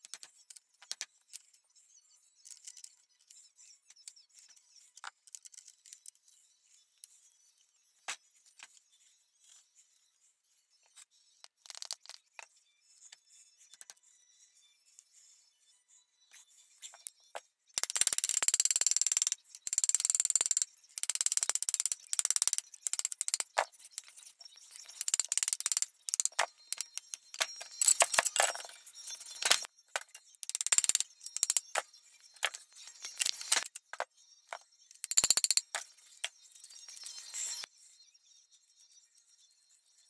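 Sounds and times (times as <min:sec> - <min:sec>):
metal clicking and rattling: 0:17.8 - 0:23.6, 0:24.9 - 0:28.7, 0:30.4 - 0:31.8.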